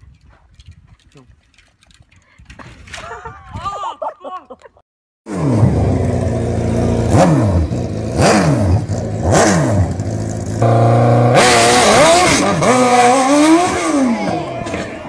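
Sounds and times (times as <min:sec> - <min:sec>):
motorcycle engine revving: 0:05.3 - 0:14.5.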